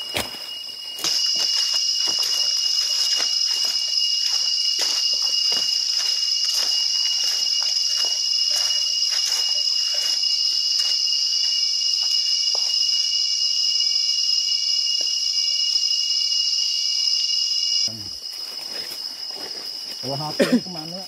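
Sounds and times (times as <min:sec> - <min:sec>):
footsteps crunching on dry leaves: 0:00.0 - 0:12.8
insects droning: 0:00.0 - 0:21.0.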